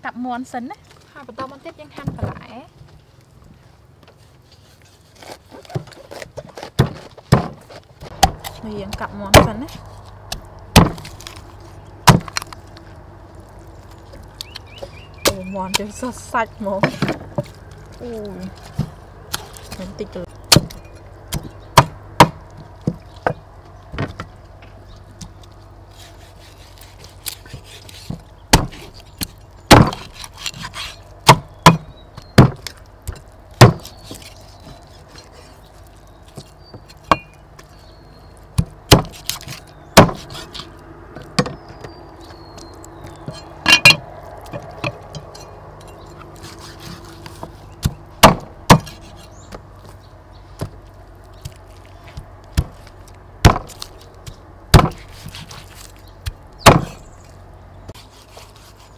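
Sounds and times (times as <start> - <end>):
cleaver chopping on wooden block: 10.3 - 11.3, 12.0 - 12.4, 20.5 - 24.3, 27.2 - 34.2, 36.4 - 37.4, 38.6 - 40.6, 46.4 - 49.6, 52.1 - 55.6, 56.2 - 57.1.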